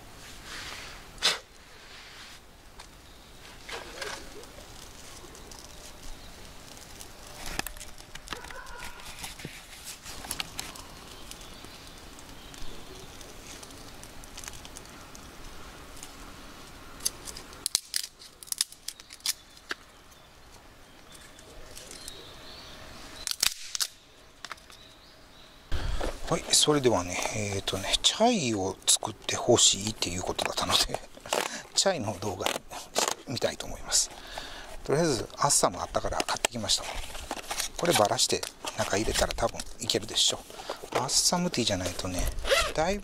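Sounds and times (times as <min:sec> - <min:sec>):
wood fire crackling and popping: 0:02.8 - 0:08.8, 0:10.0 - 0:19.9.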